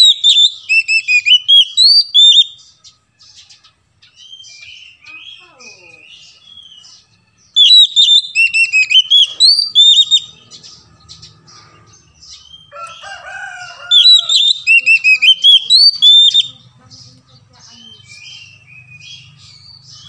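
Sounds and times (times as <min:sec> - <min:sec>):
bird singing whistled notes: 0:00.0 - 0:13.0, 0:13.9 - 0:16.7, 0:17.7 - 0:20.0
faint bird chirps: 0:00.0 - 0:13.2
lower-pitched bird call: 0:00.0 - 0:16.6.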